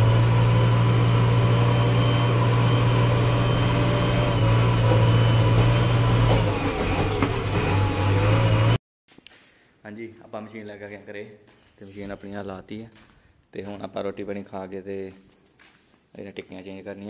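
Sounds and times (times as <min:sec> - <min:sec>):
high whine: 0:00.0 - 0:07.1
diesel engine running: 0:00.0 - 0:08.8.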